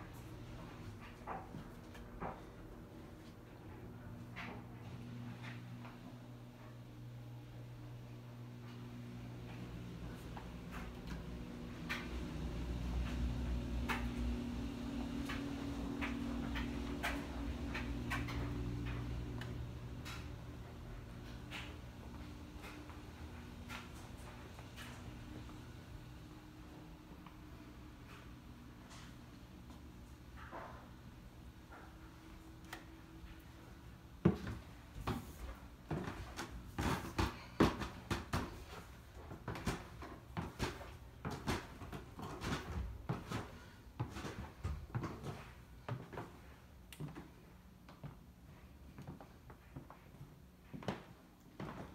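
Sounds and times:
footsteps on tile floor: 0:00.0 - 0:07.0, 0:08.4 - 0:25.8, 0:27.2 - 0:51.9
steady low hum: 0:00.0 - 0:51.9.

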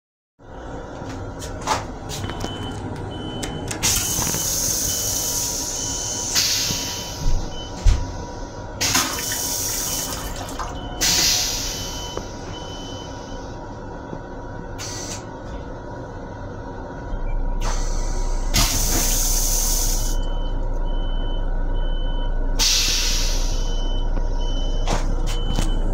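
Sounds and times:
steady low hum: 0:00.4 - 0:25.9.

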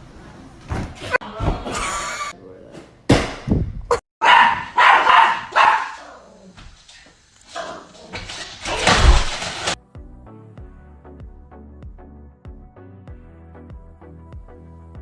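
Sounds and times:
small dog barking: 0:04.2 - 0:06.3.

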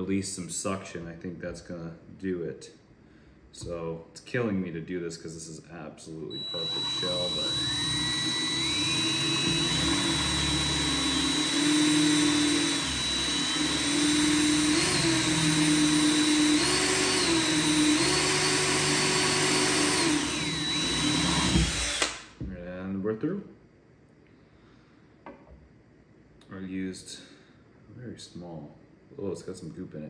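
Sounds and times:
cordless drill whine: 0:06.3 - 0:22.2.

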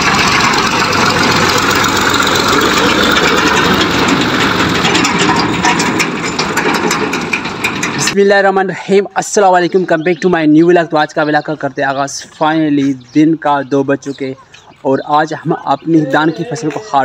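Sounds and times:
tractor diesel engine running: 0:00.0 - 0:08.4
light rattling clicks: 0:02.7 - 0:08.2.

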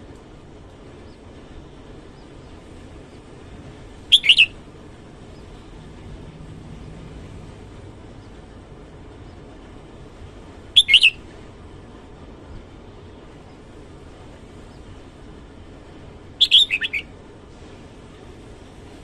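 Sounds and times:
bird singing bright phrases: 0:04.1 - 0:04.5, 0:10.8 - 0:11.2, 0:16.4 - 0:17.1.

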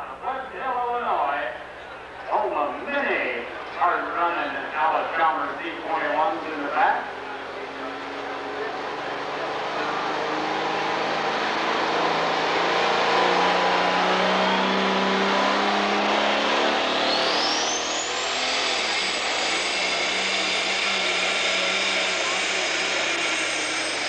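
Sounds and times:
diesel engine at full power: 0:00.0 - 0:24.0
high turbo whistle: 0:13.3 - 0:24.0.

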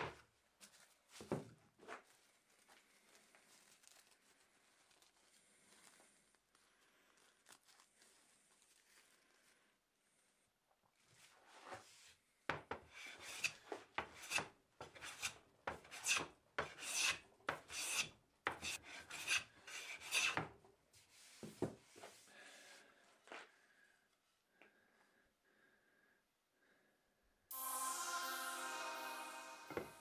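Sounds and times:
hand plane strokes on wood: 0:12.9 - 0:20.4.

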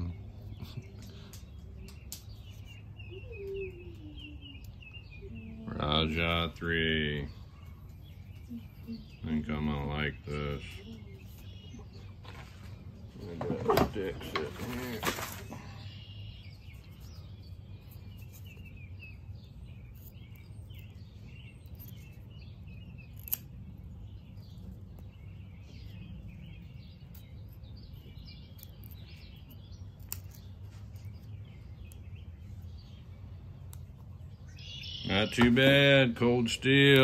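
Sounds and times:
birds chirping: 0:00.0 - 0:37.0.

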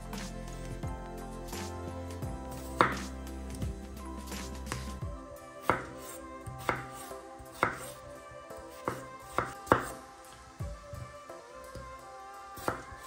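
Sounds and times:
soft background music: 0:00.0 - 0:13.0
knife chopping on cutting board: 0:02.7 - 0:03.0, 0:05.6 - 0:08.0, 0:08.7 - 0:10.0.

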